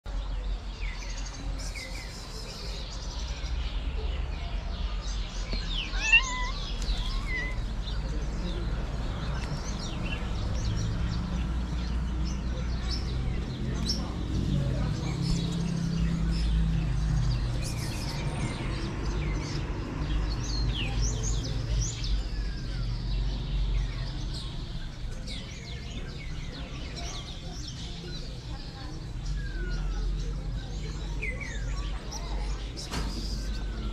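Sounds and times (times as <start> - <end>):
small birds chirping: 0.1 - 33.9.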